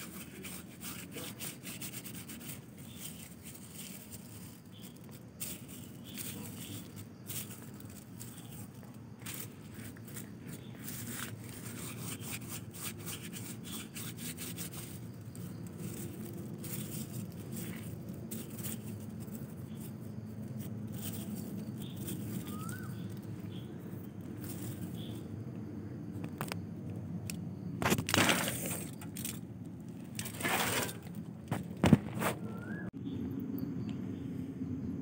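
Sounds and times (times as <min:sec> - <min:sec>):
paper strips crinkling: 0:00.0 - 0:23.7, 0:24.3 - 0:25.2.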